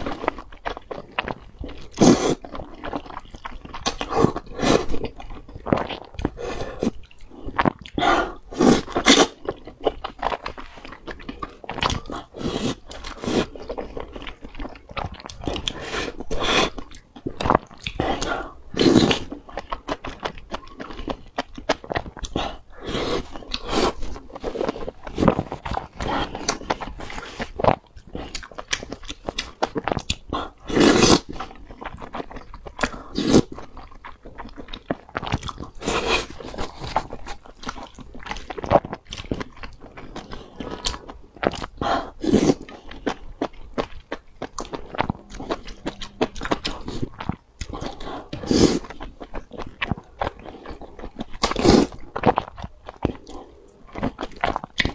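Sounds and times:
person chewing food: 0.0 - 54.9
loud slurps: 47.7 - 48.9.

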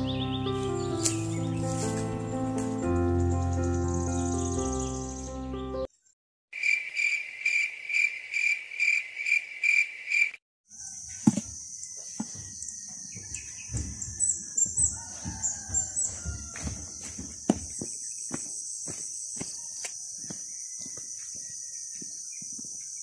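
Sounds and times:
rubber boots knocking and rustling: 11.2 - 22.8.

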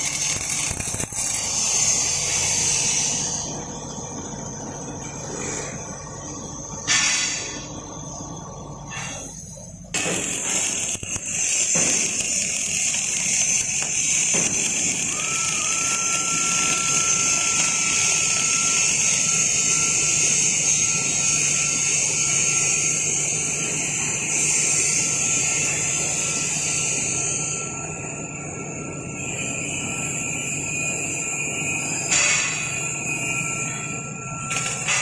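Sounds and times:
welding arc hissing: 0.0 - 4.1, 8.8 - 35.0.

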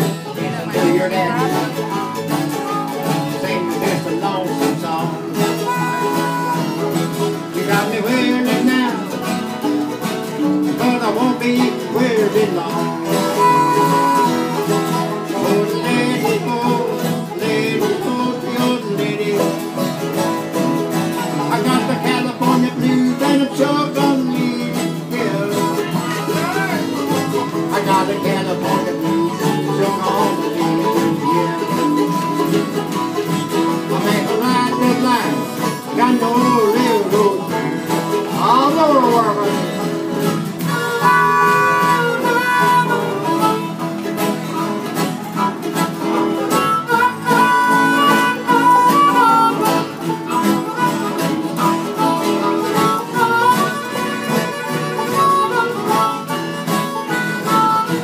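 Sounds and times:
strummed acoustic guitars: 0.0 - 58.0
harmonica playing bending notes: 5.1 - 7.6, 12.8 - 36.2, 39.1 - 58.0.

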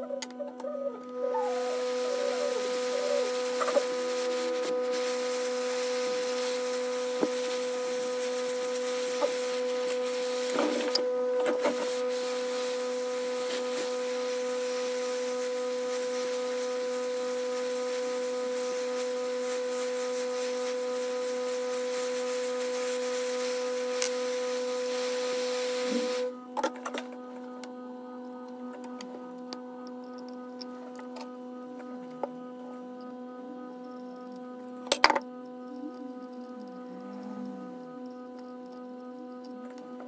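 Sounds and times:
hot air blower rushing and whining: 1.3 - 26.4.

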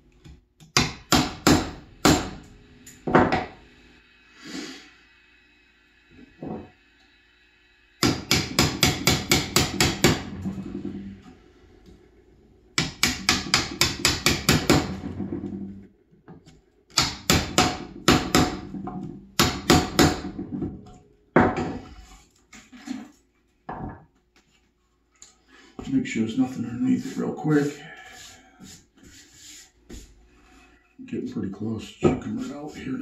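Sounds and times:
hammer tapping wood chisel: 8.0 - 10.3, 12.8 - 14.9, 16.9 - 18.6.

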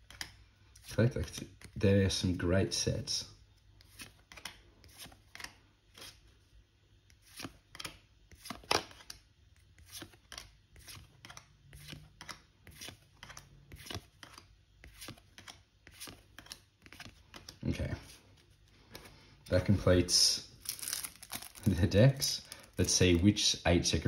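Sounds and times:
cards slapping on a tabletop: 3.8 - 6.2, 7.3 - 9.2, 9.8 - 17.6.

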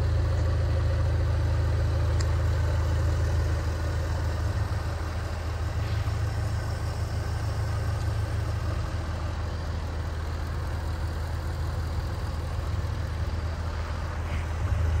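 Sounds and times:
car engine idling: 0.0 - 15.0.

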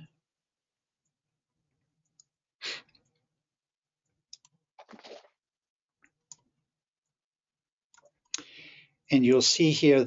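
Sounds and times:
computer mouse clicks: 4.3 - 4.6, 7.9 - 8.5
soft breath-like sounds: 8.4 - 9.1.

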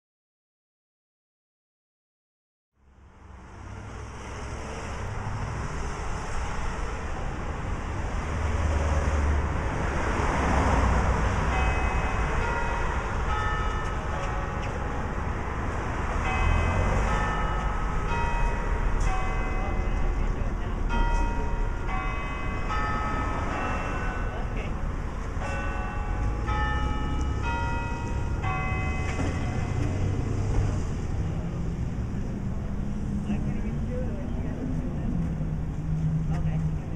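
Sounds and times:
street traffic: 2.8 - 36.9
clock tower bells chiming: 11.4 - 15.4, 16.2 - 30.2
steady low rumble: 29.4 - 36.9.

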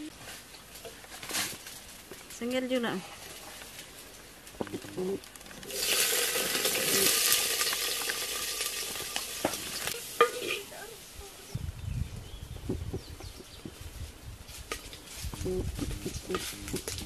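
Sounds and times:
snails sizzling in hot pot: 4.0 - 11.3.

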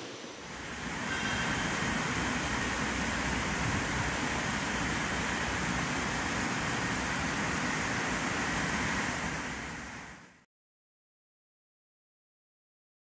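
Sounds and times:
steady rushing noise: 0.0 - 10.4.

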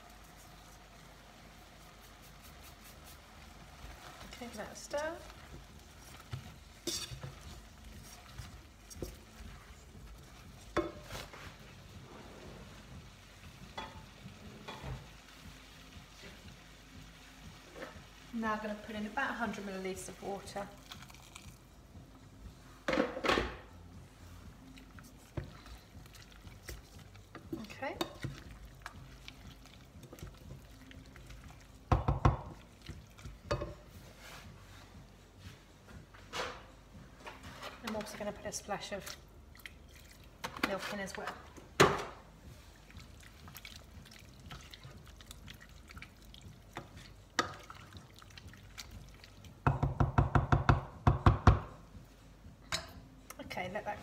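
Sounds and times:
wooden spoon stirring: 0.0 - 15.0, 24.1 - 36.3, 37.1 - 41.7, 42.4 - 50.6
food cooking in a saucepan: 0.0 - 22.8, 23.7 - 35.9, 36.8 - 53.9
knocks on a saucepan: 31.9 - 32.6, 49.6 - 51.8.

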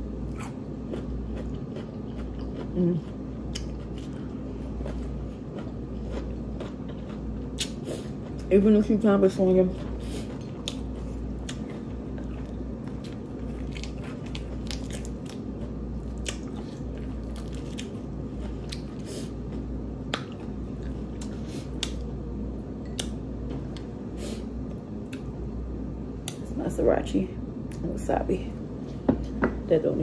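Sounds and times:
steady low hum: 0.0 - 30.0
biting and chewing: 0.2 - 8.8, 9.4 - 22.1.

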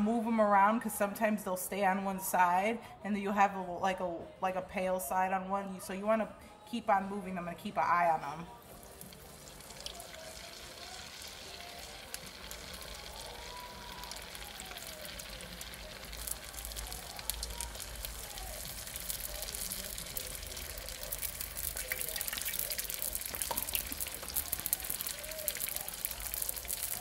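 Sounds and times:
oil sizzling with crackling pops: 8.6 - 27.0.

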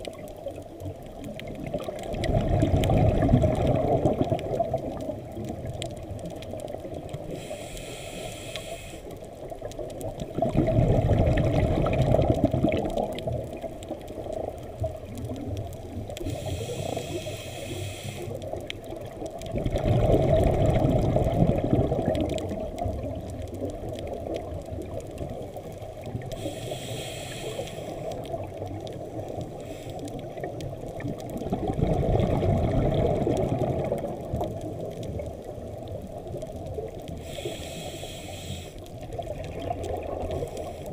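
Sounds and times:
exhaled air bubbling: 0.0 - 40.9
regulator inhalation hiss: 7.3 - 9.2, 16.2 - 18.5, 26.3 - 28.2, 29.5 - 30.2, 37.2 - 38.8, 40.3 - 40.9.

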